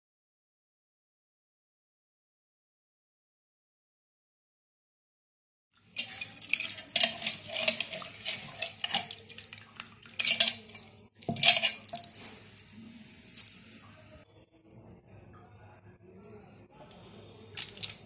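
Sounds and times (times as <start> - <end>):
dishes and cutlery clattering: 5.9 - 13.6.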